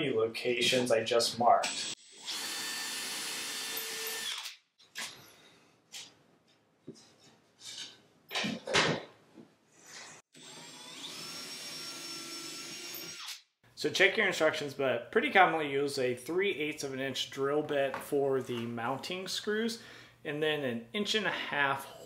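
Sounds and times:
cordless drill whining: 0:01.7 - 0:04.5, 0:10.4 - 0:13.4.

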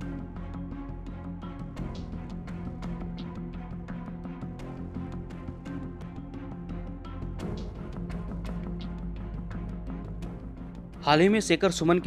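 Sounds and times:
instrumental music with beat: 0:00.0 - 0:12.0.

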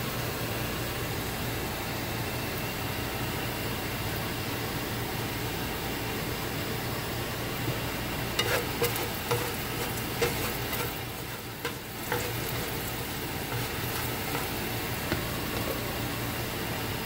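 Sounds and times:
garlic sizzling in oil: 0:07.6 - 0:17.0
wooden spatula scraping and tapping: 0:08.4 - 0:15.9.

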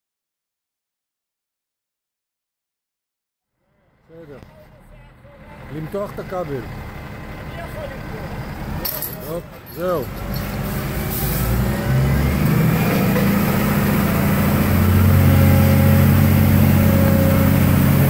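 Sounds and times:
heavy diesel engines under load: 0:03.6 - 0:18.0.

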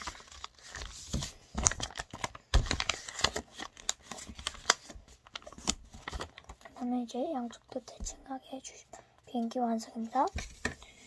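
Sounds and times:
paper rustling and crinkling: 0:00.0 - 0:06.8.

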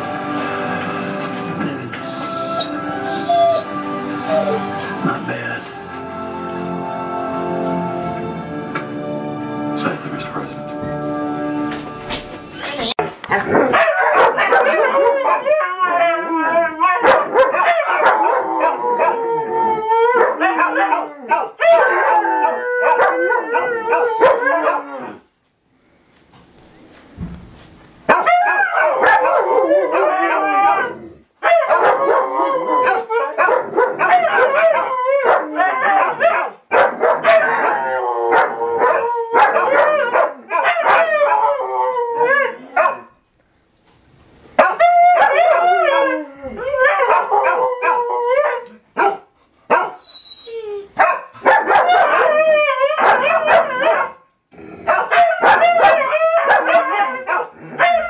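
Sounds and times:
dogs howling together: 0:01.7 - 0:05.2, 0:13.3 - 0:25.3, 0:28.1 - 0:43.1, 0:44.6 - 0:54.2, 0:54.8 - 0:58.0.

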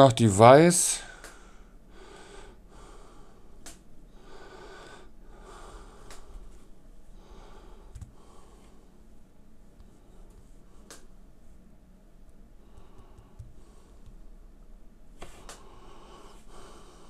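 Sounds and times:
man breathing softly: 0:01.1 - 0:09.0, 0:12.6 - 0:14.2, 0:15.2 - 0:17.0.

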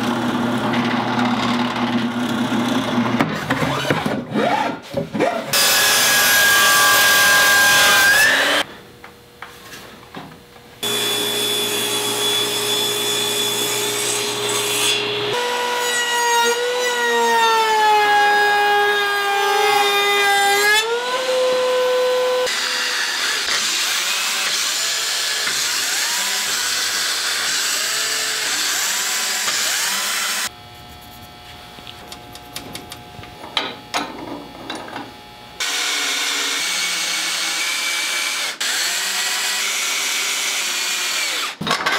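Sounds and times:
power saw whining: 0:10.8 - 0:15.8
router whining: 0:10.8 - 0:15.8, 0:16.4 - 0:30.7, 0:35.6 - 0:41.9.

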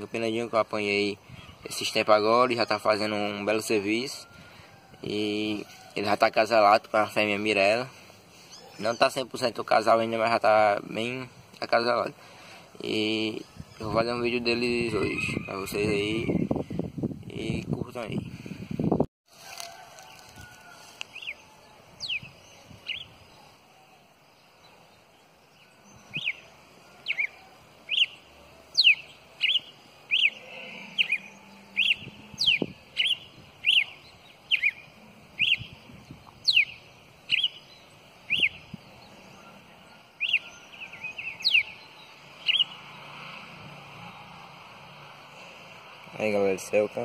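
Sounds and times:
songbird whistling: 0:25.9 - 0:35.8, 0:36.4 - 0:37.7, 0:38.3 - 0:38.8, 0:40.2 - 0:42.8.

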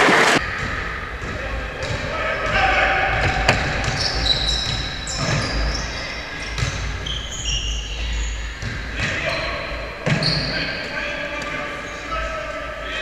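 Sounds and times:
basketball bouncing: 0:00.4 - 0:09.4
sneaker squeaks on floor: 0:03.2 - 0:12.1.

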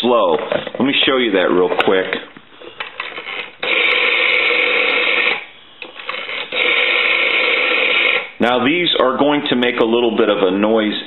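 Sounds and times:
rotary telephone dial whirring: 0:02.8 - 0:08.3.

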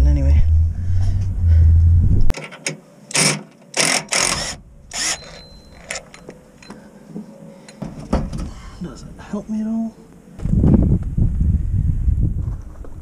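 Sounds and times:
low rumble: 0:00.0 - 0:02.3, 0:10.4 - 0:12.6.

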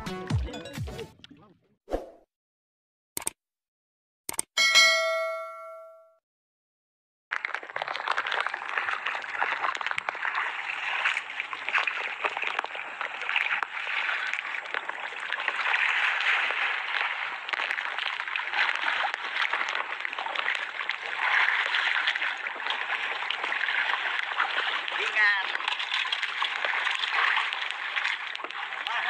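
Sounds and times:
small splashes: 0:07.3 - 0:29.0
sea water sloshing against boat: 0:07.4 - 0:29.0.

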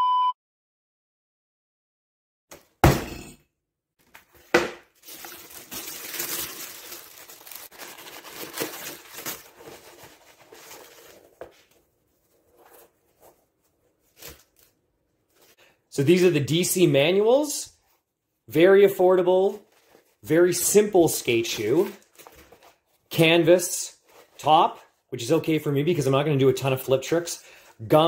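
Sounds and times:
tissue paper rustling: 0:04.2 - 0:15.6, 0:19.2 - 0:20.2, 0:20.8 - 0:23.1.

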